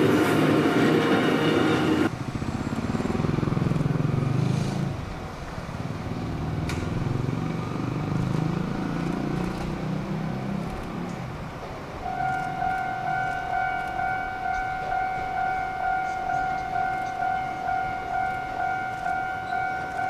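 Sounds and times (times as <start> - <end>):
train wheel squeal: 0.0 - 2.1, 12.1 - 20.0
railcar mechanical rumble: 0.0 - 7.6, 8.8 - 20.0.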